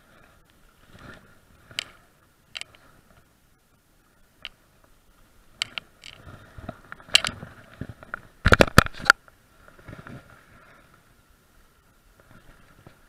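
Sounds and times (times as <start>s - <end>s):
fishing rod handling clicks: 1.7s - 2.9s, 5.6s - 6.2s, 7.1s - 7.4s.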